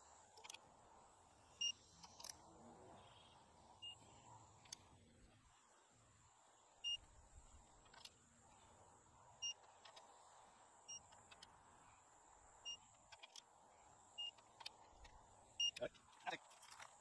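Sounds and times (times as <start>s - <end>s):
faint wrench clicks: 1.9s - 2.4s, 12.9s - 13.5s
digital torque wrench beeping: 12.6s - 12.9s, 14.2s - 14.5s, 15.6s - 15.9s.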